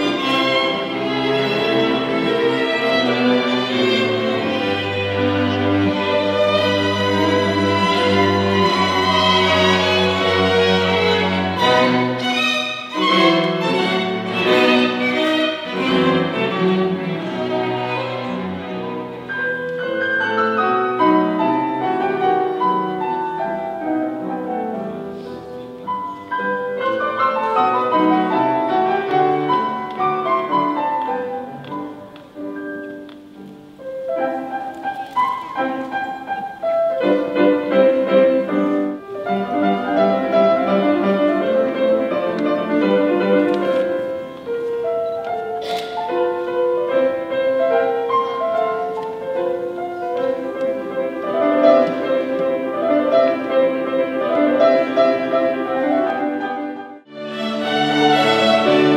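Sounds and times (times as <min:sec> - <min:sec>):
classical piano music: 0:00.0 - 0:58.9.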